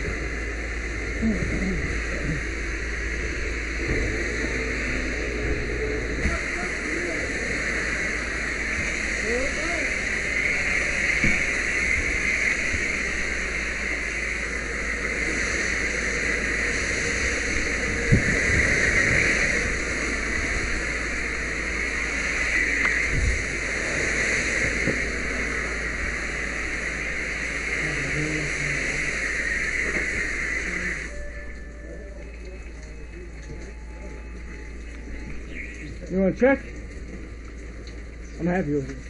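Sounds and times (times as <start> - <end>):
hose nozzle spraying water: 3.8 - 31.7.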